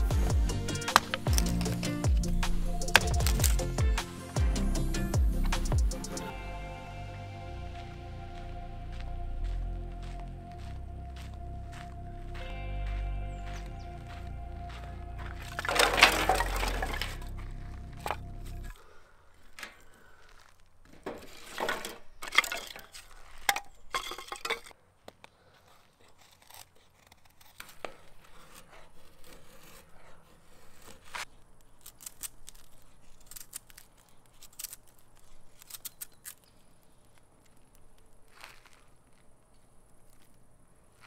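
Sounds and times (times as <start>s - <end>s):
kindling crackling: 0.0s - 6.4s, 7.6s - 21.5s, 24.9s - 41.0s
knife shaving wood: 0.5s - 3.8s, 15.6s - 17.2s, 25.1s - 41.0s.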